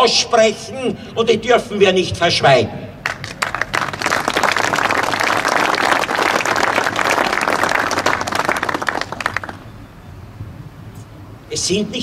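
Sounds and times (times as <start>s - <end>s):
audience applauding: 3.0s - 9.7s.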